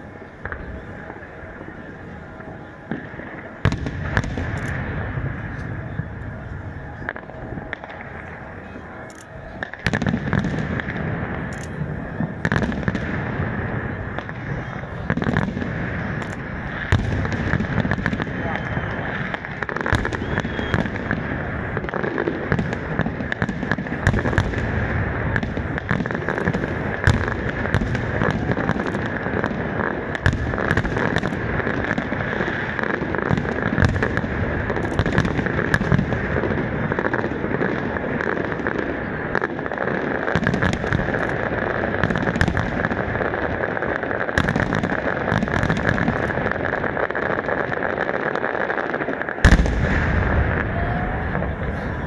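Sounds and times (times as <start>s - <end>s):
fireworks bangs and crackles: 0.0s - 52.0s.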